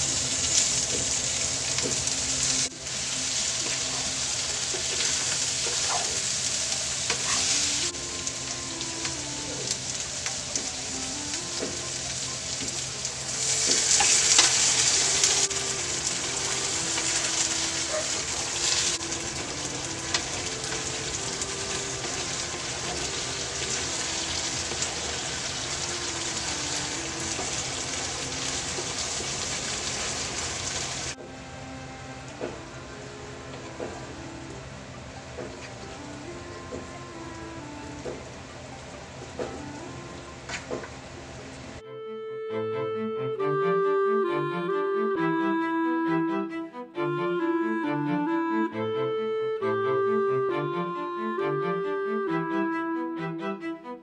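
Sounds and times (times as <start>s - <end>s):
food sizzling in a wok: 0.0s - 31.2s.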